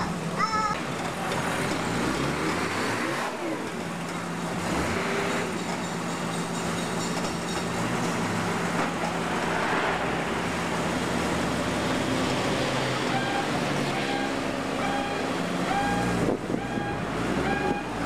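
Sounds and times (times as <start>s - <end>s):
forklift engines humming: 0.0s - 18.0s
engine revving: 1.3s - 3.5s, 4.5s - 5.6s.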